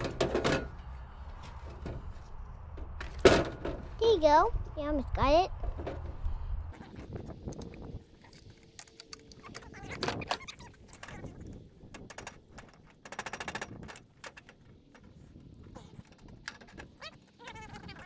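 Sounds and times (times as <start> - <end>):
metal parts clinking on steel: 8.2 - 14.6.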